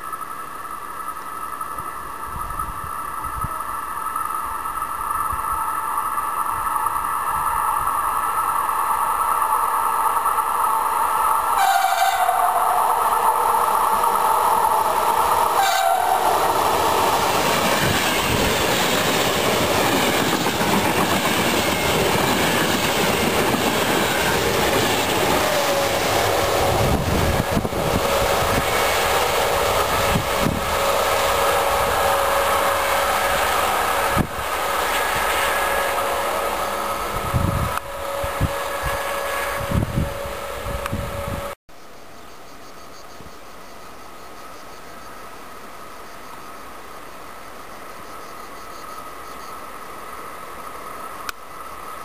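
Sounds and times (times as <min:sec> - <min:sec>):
electric locomotive whine: 0:00.0 - 0:41.6
train horn: 0:11.5 - 0:13.7, 0:15.3 - 0:16.6, 0:25.1 - 0:41.6
train wheels clattering on rails: 0:14.0 - 0:31.6.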